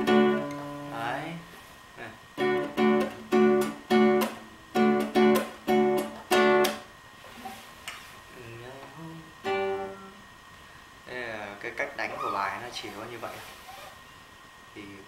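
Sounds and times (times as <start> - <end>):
classical guitar strummed chords: 0.0 - 1.1, 2.4 - 6.9, 9.2 - 10.2.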